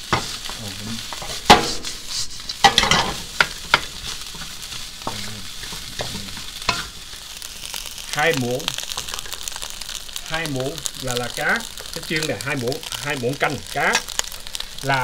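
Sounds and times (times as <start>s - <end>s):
spatula scraping and knocking pan: 0.0s - 7.2s
rice sizzling in a pan: 0.0s - 15.0s.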